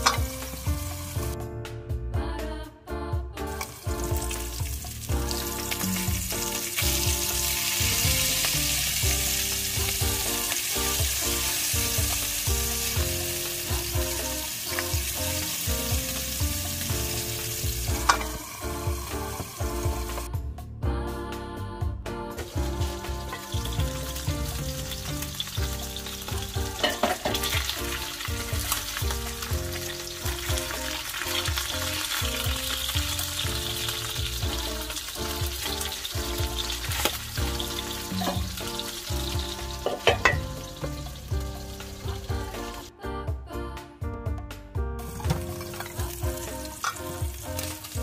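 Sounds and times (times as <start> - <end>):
fish sizzling in hot oil: 0.0 - 1.4, 3.6 - 20.3, 22.5 - 42.9, 45.0 - 48.0
background music: 0.0 - 48.0
spatula and pan lid knocks: 39.8 - 40.5.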